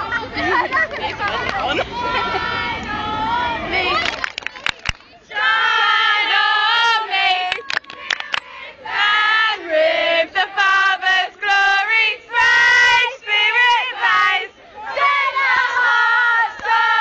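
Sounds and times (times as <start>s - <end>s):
girls singing together: 5.2s - 17.0s.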